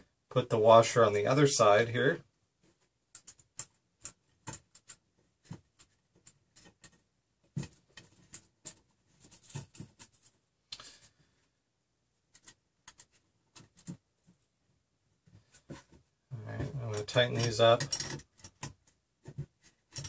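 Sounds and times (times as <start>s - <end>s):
clicks and rattles of small parts: 16.9s - 20.0s.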